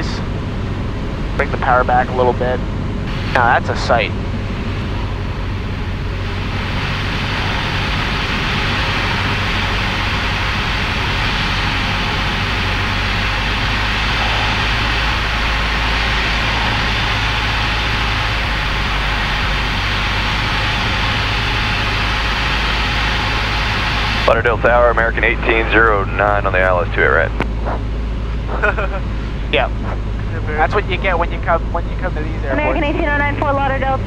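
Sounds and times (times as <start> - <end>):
wind rushing over airframe: 0.0 - 24.4
propeller engine drone: 0.0 - 34.0.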